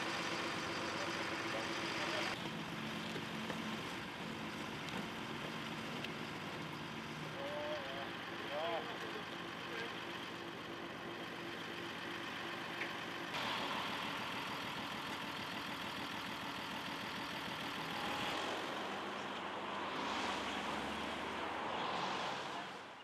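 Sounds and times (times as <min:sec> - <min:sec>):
truck engine idling: 0:00.0 - 0:19.8
road traffic: 0:00.0 - 0:23.0
vehicle passing by: 0:17.6 - 0:23.0.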